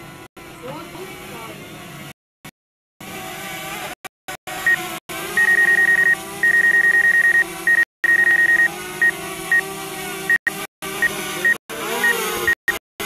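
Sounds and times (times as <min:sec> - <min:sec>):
rapid high electronic beeps: 0:05.4 - 0:08.7, 0:11.5 - 0:12.8.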